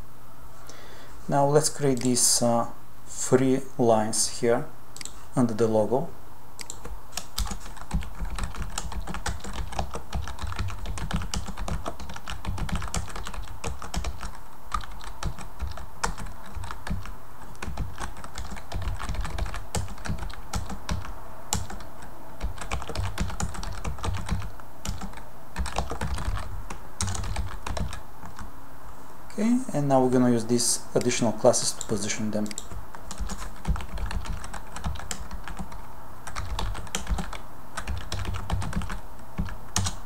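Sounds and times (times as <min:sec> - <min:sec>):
typing on computer keyboard: 0:06.6 - 0:28.5, 0:31.8 - 0:40.0.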